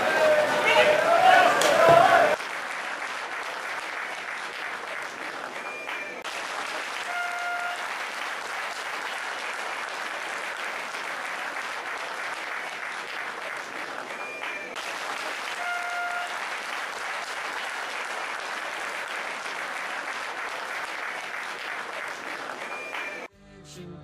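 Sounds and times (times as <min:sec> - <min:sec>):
crowd applause: 0:00.0 - 0:23.3
brief horn-like tone: 0:07.1 - 0:07.8, 0:15.6 - 0:16.4.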